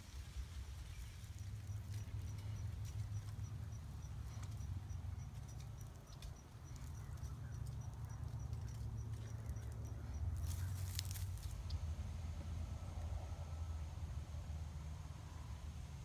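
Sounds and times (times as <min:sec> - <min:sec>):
faint high pulsing chirp: 0:00.9 - 0:11.2
faint rustling and crackling: 0:10.4 - 0:11.7.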